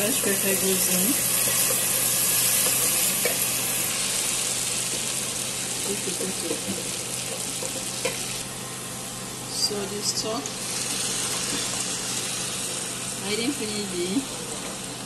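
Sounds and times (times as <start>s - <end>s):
sauce sizzling in a pan: 0.0s - 15.0s.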